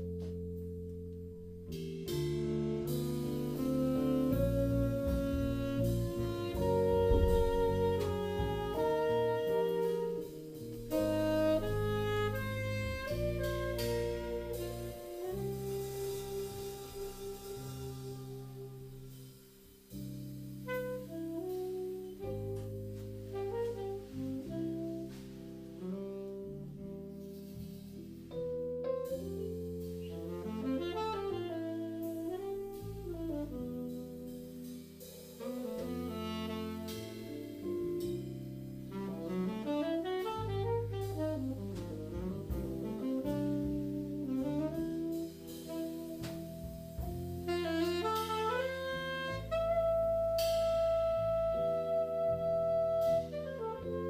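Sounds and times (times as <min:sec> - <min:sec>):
keyboard chords: 0:00.0 - 0:16.0
drums: 0:00.0 - 0:54.0
electric bass: 0:00.0 - 0:54.0
saxophone melody: 0:01.7 - 0:19.3, 0:20.5 - 0:27.6, 0:28.3 - 0:34.8, 0:35.4 - 0:54.0.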